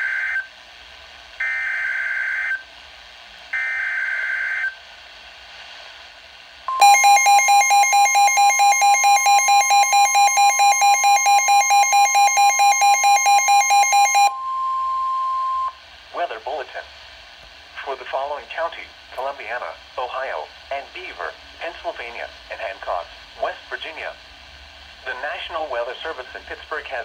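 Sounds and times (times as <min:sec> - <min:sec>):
rapid alert beeps: 0:06.7 - 0:14.4
steady warning alarm tone: 0:06.7 - 0:15.8.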